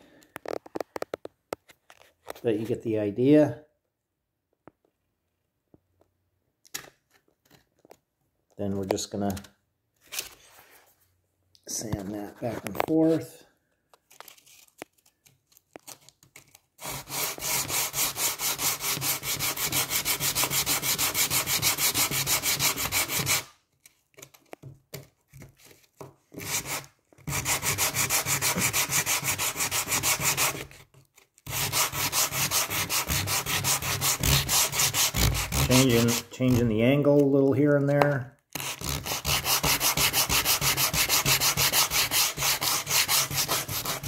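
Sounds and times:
sandpaper rubbing on wood: 16.8 - 23.5, 26.4 - 30.7, 31.5 - 36.8, 38.6 - 44.0.

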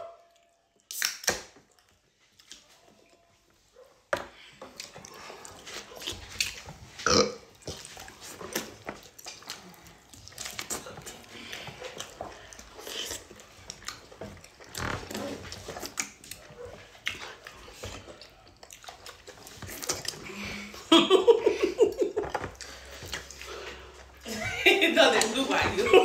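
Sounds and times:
wet chewing and slurping: 3.8 - 20.8, 22.2 - 24.2.

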